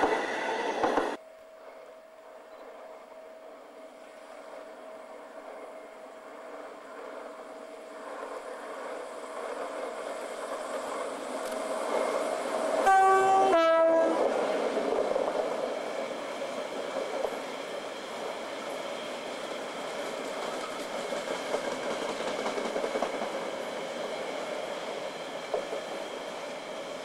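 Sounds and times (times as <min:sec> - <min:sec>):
diesel locomotive engine: 0:00.0 - 0:27.0
two-tone train horn: 0:12.8 - 0:14.3.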